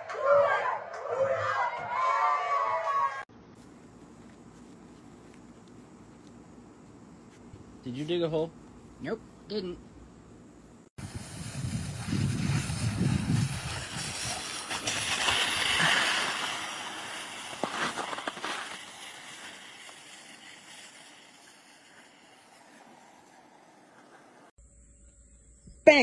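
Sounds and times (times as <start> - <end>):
wind rumbling on microphone: 11.0 - 16.8
board sliding on snow: 11.0 - 24.5.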